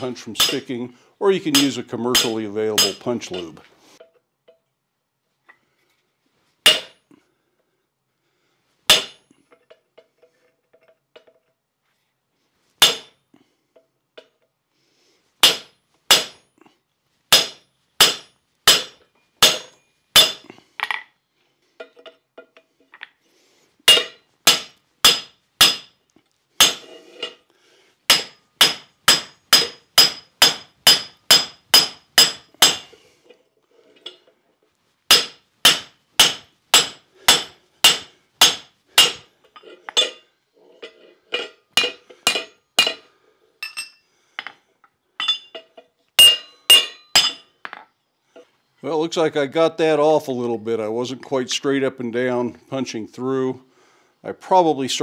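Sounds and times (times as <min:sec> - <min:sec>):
hammer striking metal punch: 0:01.5 - 0:03.4, 0:06.7 - 0:07.0, 0:08.9 - 0:09.2, 0:12.8 - 0:13.1, 0:15.4 - 0:16.4, 0:17.3 - 0:21.0, 0:23.9 - 0:25.9, 0:26.6 - 0:26.9, 0:28.1 - 0:32.9, 0:35.1 - 0:39.3, 0:41.8 - 0:43.0, 0:46.2 - 0:47.4.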